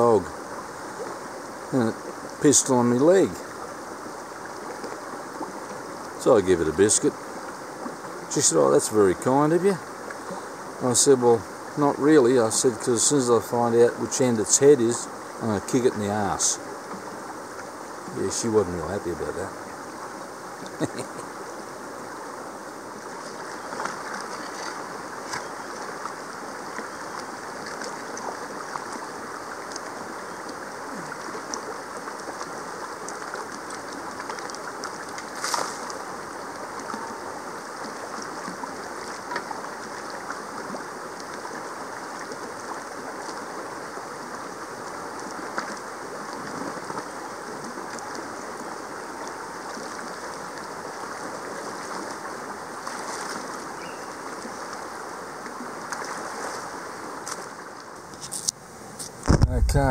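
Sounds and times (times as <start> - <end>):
creek water running: 0.0 - 59.9
small clicks and splashes: 23.2 - 26.1, 26.7 - 36.0, 45.2 - 50.1, 55.4 - 59.4.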